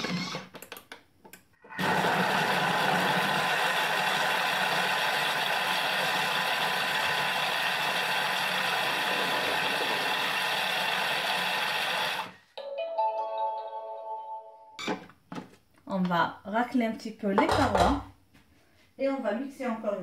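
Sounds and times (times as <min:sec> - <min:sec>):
food processor motor blending: 0:01.8 - 0:12.4.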